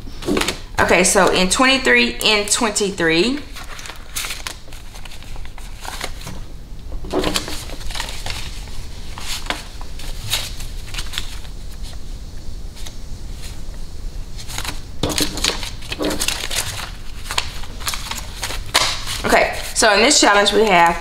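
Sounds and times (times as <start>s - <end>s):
paper banknotes rustling: 3.3s - 12.0s, 14.4s - 20.7s.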